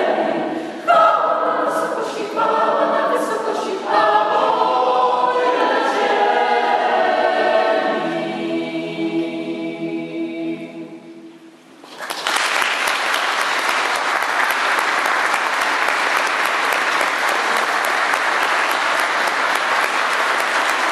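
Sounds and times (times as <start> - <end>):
choir singing chord: 0.0 - 11.6
audience applause: 11.8 - 20.9.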